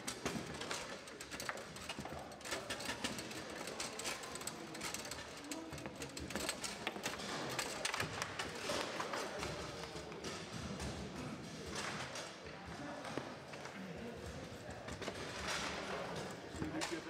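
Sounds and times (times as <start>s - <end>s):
foosball ball and rods clattering: 0.0s - 12.3s.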